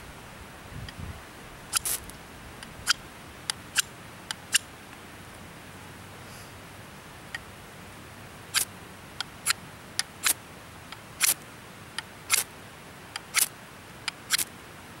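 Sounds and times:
ferro rod scraping knife spine: 0:01.7 - 0:02.1, 0:13.2 - 0:13.5, 0:14.3 - 0:14.5.

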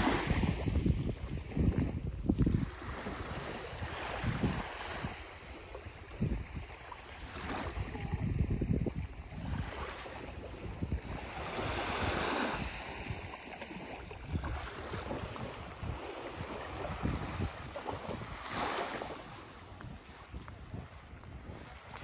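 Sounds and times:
small waves washing on sand: 0:00.0 - 0:22.0
wind buffeting microphone: 0:00.0 - 0:22.0.

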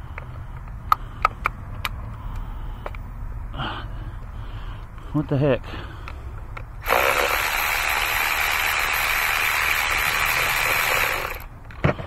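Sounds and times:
electric ratchet running: 0:06.8 - 0:11.5.

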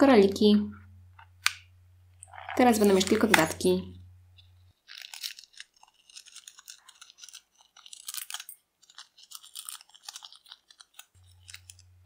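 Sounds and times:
balloon beads crackling and clicking: 0:04.4 - 0:12.0.

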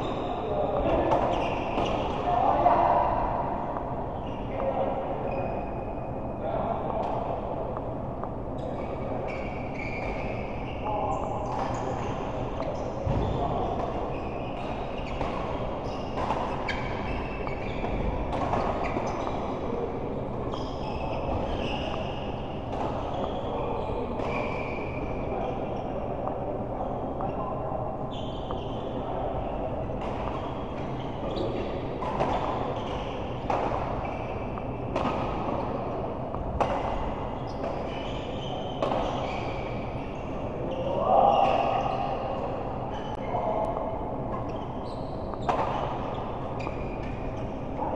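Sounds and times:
racket striking shuttlecock: 0:33.4 - 0:35.6.

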